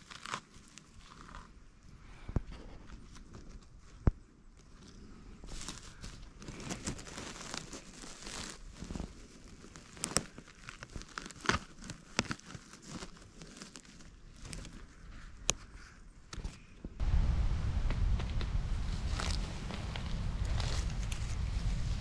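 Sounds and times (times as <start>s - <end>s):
rustling of dry needles: 2.6s - 16.7s.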